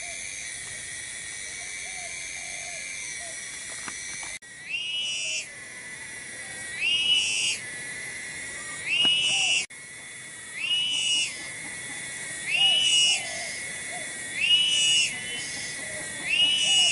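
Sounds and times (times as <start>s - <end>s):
steady hiss: 0.0s - 16.9s
animal call whistle-like: 8.8s - 9.7s, 12.5s - 13.6s, 14.4s - 15.6s, 16.3s - 16.9s.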